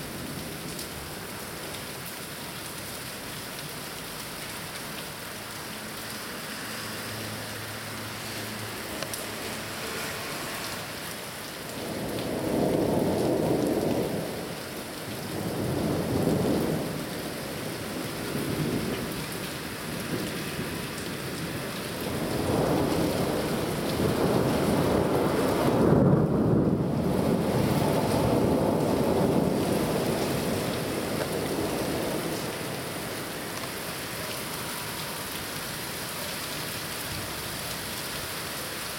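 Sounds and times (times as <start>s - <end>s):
steady rain: 0.0s - 38.9s
rolling thunder: 21.3s - 32.8s.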